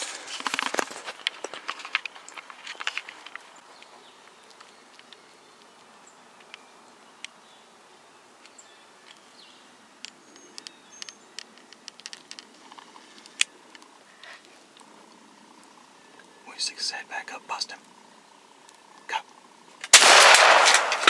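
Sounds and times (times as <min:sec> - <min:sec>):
sharp clicks and crackles: 0:00.0 - 0:06.6, 0:10.0 - 0:15.9, 0:19.7 - 0:21.0
low steady hiss: 0:00.0 - 0:21.0.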